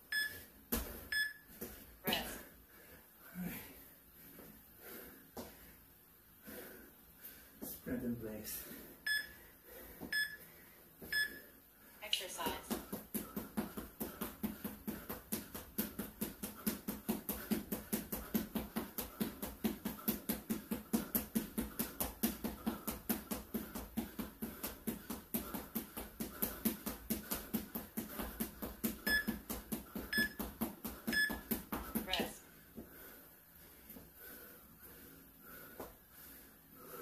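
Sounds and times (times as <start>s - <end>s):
running footsteps on hard floor: 12.4s - 33.1s.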